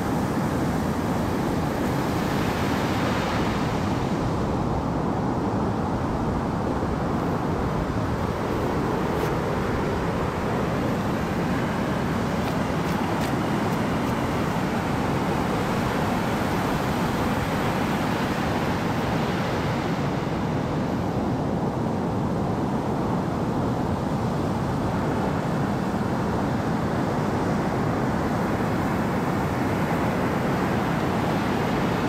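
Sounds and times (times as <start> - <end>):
wind noise: 0.0 - 32.0
ocean water rushing: 6.2 - 21.8.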